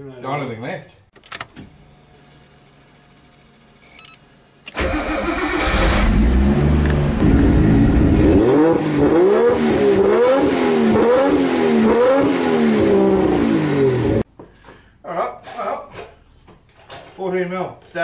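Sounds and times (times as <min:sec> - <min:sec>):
car engine revving at exhaust: 0:05.9 - 0:14.2.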